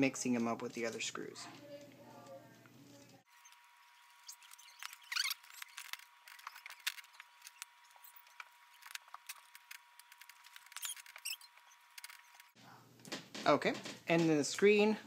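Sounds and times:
little squeaks: 3.0 - 12.6.

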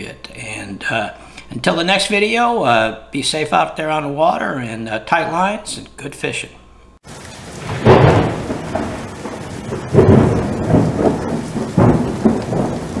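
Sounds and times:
steady rain: 7.0 - 13.0
thunder rolling: 7.1 - 13.0.

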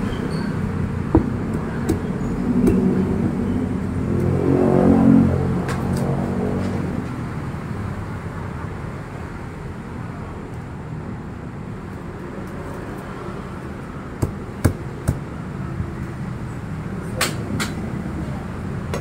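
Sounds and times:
sharp knocks: 1.1 - 2.9.

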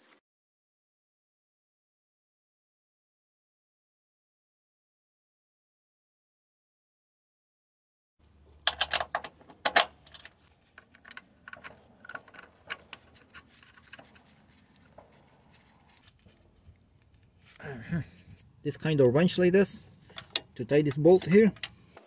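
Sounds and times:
metal parts clicking and rattling: 8.5 - 16.4, 20.0 - 20.6.

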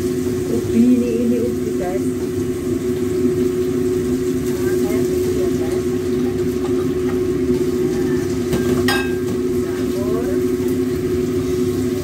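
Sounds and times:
food frying in a wok: 0.0 - 12.0
steady mechanical hum: 0.0 - 12.0
spatula clanking on wok: 8.5 - 9.4.

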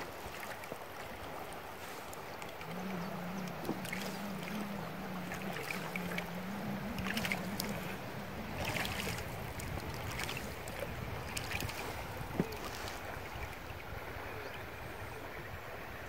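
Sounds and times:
water splashing against hull: 0.0 - 15.8
river water rushing: 0.0 - 16.0
faint low hum: 2.4 - 11.4.

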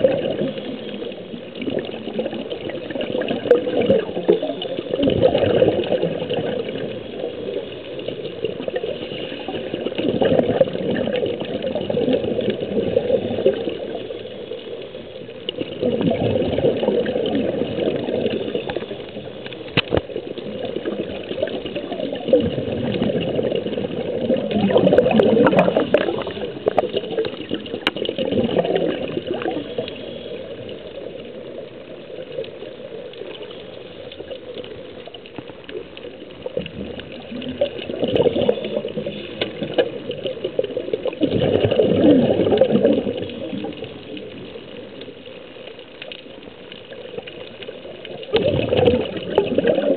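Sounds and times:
underwater air bubbling: 0.0 - 49.9.

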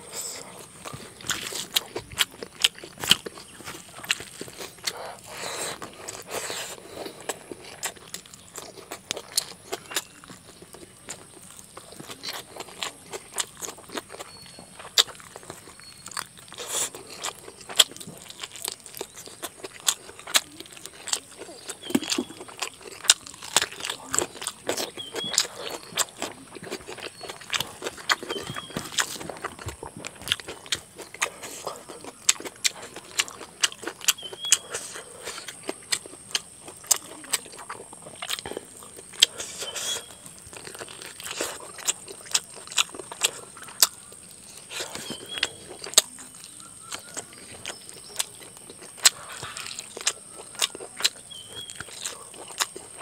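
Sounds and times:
person chewing and smacking: 0.0 - 53.0.

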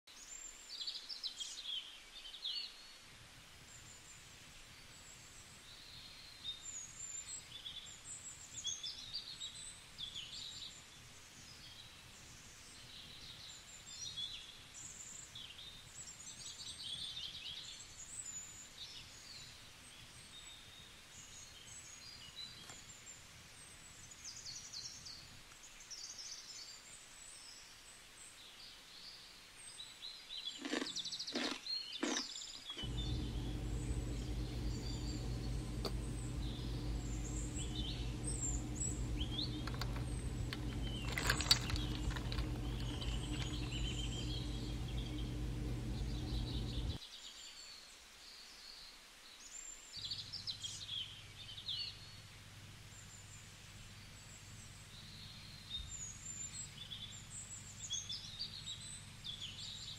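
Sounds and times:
birds chirping and singing: 32.8 - 47.0
faint low hum: 32.8 - 47.0.

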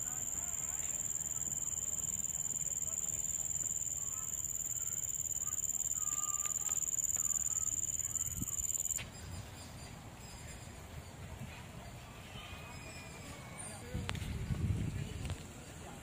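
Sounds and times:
insects trilling: 0.0 - 9.0
faint bird chirps: 0.0 - 13.9.

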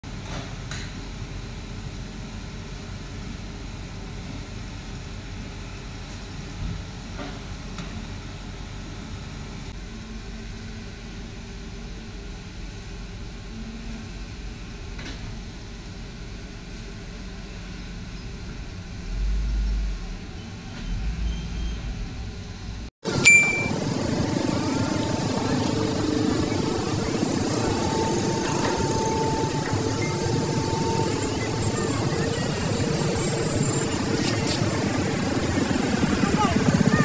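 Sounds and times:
excavator diesel engine rumbling: 19.1 - 37.0.

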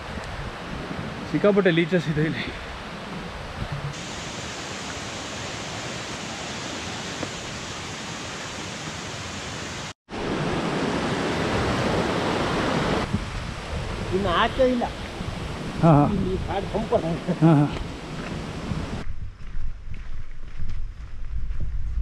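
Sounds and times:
steady rushing hiss: 3.9 - 10.0
stream tumbling over rocks: 4.0 - 19.0.

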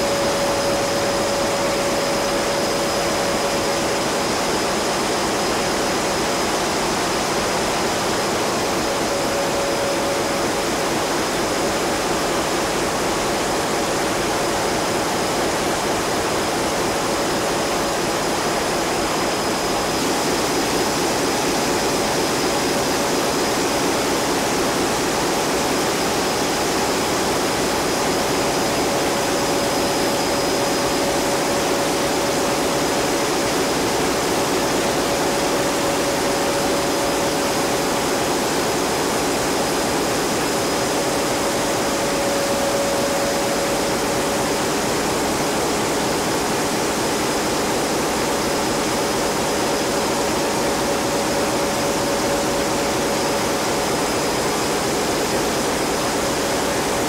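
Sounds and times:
mid-pitched hum: 0.0 - 5.8, 34.4 - 46.8
high whine: 0.0 - 56.9
engine room machinery: 0.0 - 57.0.

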